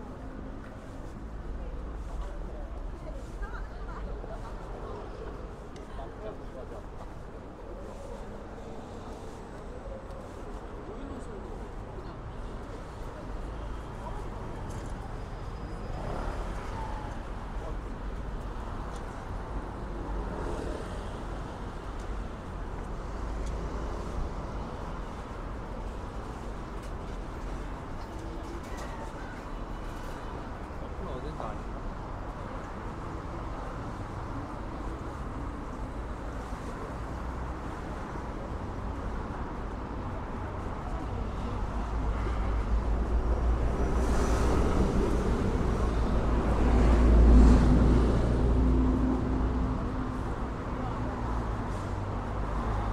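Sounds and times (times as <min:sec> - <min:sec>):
road traffic rumble: 0:00.0 - 0:52.9.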